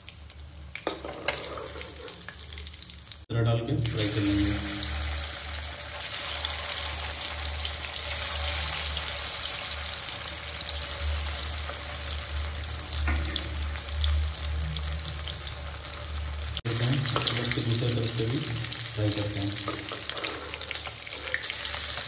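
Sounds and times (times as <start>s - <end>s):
fish sizzling in oil: 3.9s - 22.0s.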